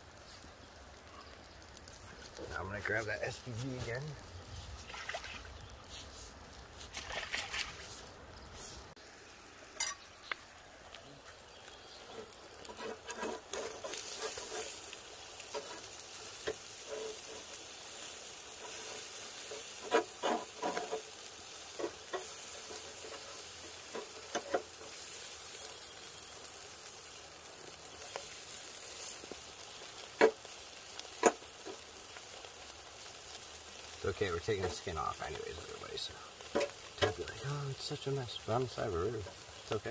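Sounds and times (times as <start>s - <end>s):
fish sizzling on grill: 0.0s - 39.9s
tongs knocking against grill grate: 21.8s - 22.4s.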